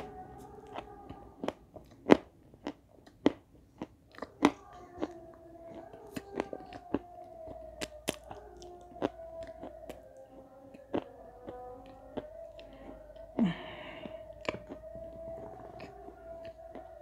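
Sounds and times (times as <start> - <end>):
chalk crunching while chewing: 0.0 - 13.4.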